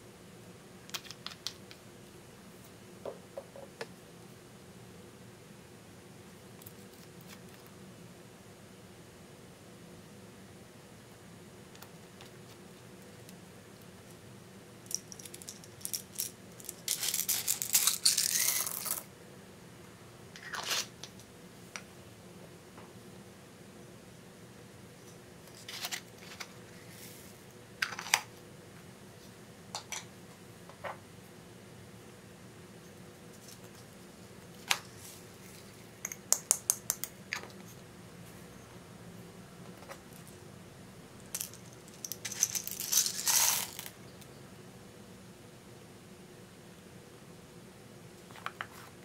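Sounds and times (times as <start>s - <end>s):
beads rattling in a pot: 14.8s - 19.1s, 41.3s - 44.0s.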